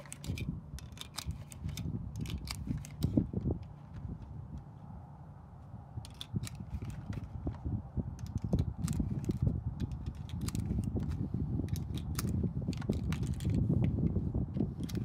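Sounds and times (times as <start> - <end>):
cartridges clicking into magazine: 0.0 - 3.2, 6.0 - 7.3, 8.2 - 13.6
low rumble: 0.0 - 15.0.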